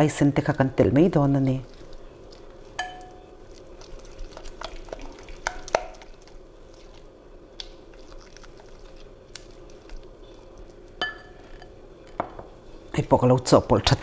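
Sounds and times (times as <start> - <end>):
spatula stirring thick marinade: 1.4 - 11.6
spatula clinking against glass: 2.8 - 3.2, 11.0 - 11.7.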